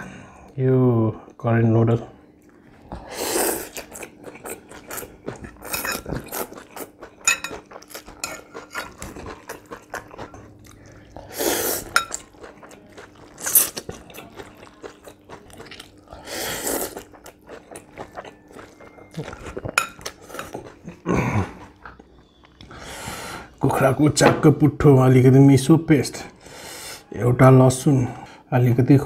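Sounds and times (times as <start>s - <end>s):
wet chewing and smacking: 2.4s - 22.8s
slurping noodles: 3.0s - 6.7s, 8.4s - 12.4s.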